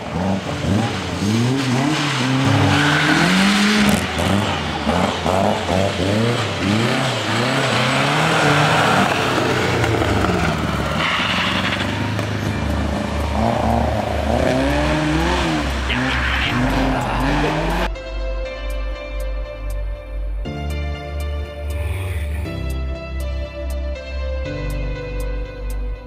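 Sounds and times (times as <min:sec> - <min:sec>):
rally car engines revving: 0:00.0 - 0:17.9.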